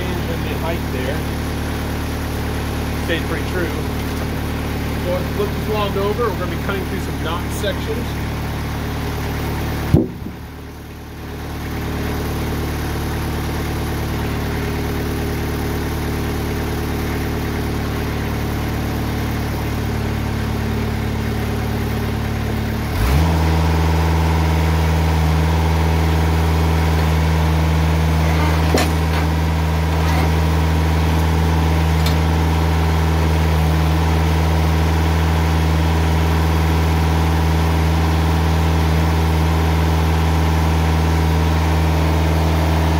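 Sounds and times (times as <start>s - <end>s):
sawmill engine running: 0.0s - 42.9s
short thump: 9.9s - 10.4s, 28.3s - 29.4s.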